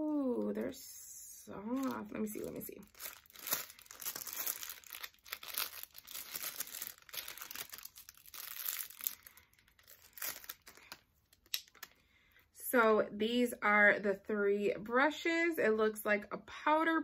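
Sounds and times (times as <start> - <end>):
plastic packaging crinkling: 1.6 - 12.0.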